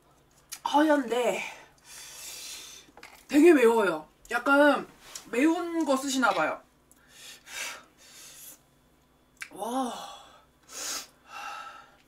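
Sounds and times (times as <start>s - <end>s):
woman's hissing breaths: 10.0s - 12.0s.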